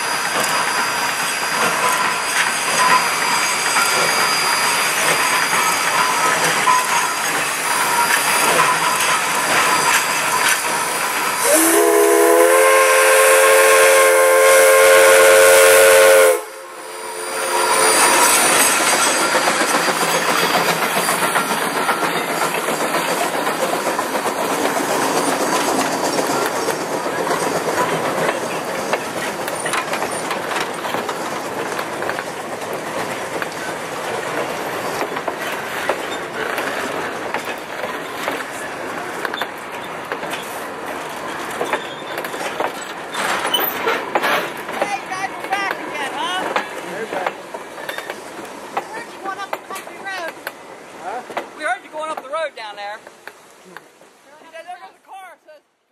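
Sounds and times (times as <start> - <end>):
train rumbling past: 0.0 - 54.9
steam locomotive whistle: 10.7 - 18.7
wheels clicking over rail joints: 18.4 - 52.4.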